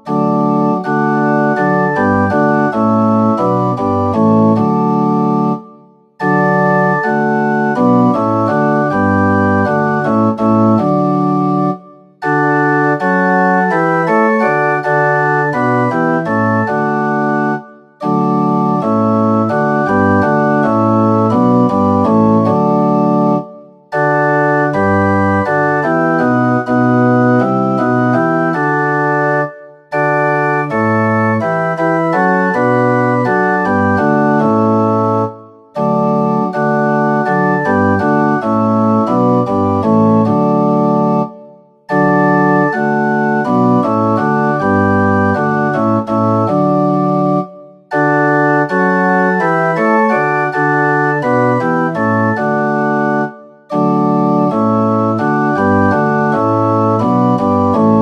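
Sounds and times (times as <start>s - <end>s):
organ playing hymn chords: 0.0s - 58.0s.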